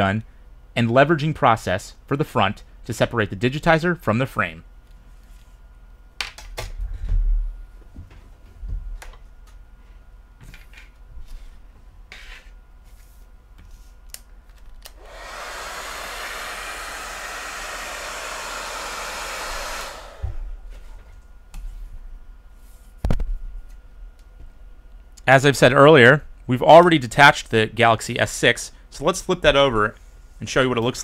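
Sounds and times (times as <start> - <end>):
heat gun blowing: 14.9 - 20.5.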